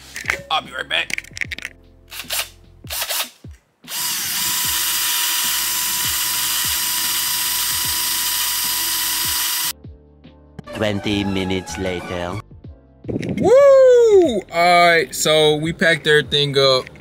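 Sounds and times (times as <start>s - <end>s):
power drill drilling into metal: 3.9s - 9.7s.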